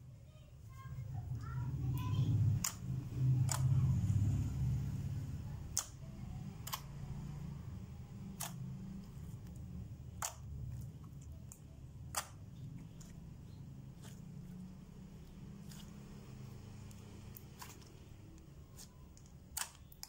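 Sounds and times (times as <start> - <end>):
slime clicking as kneaded: 2.6 - 3.8, 5.7 - 6.9, 8.3 - 8.7, 9.4 - 13.1, 18.7 - 20.0.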